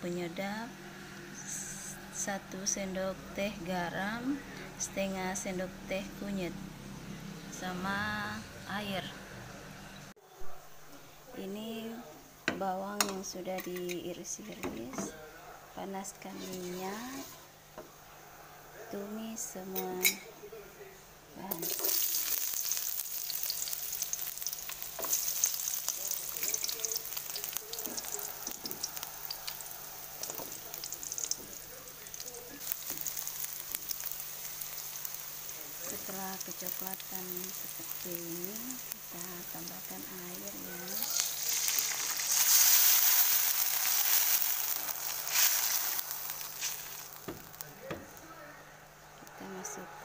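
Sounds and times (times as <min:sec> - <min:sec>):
shallots sizzling in hot oil: 0:01.1 - 0:08.9, 0:16.3 - 0:17.4, 0:21.4 - 0:48.0
wooden spatula scraping a wok: 0:16.2 - 0:17.4, 0:40.8 - 0:47.6.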